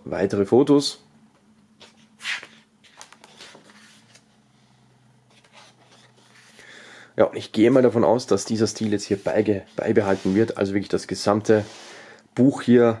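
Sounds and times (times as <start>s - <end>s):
page turning swish: 1.8s - 4.2s
paper rustles and taps: 1.8s - 4.2s.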